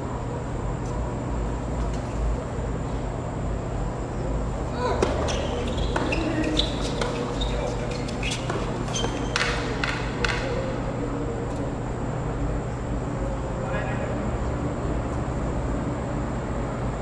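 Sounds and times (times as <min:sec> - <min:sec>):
steady low hum: 0:00.0 - 0:17.0
shoes squeaking on court: 0:04.6 - 0:10.8
tennis ball struck by rackets: 0:05.0 - 0:10.6.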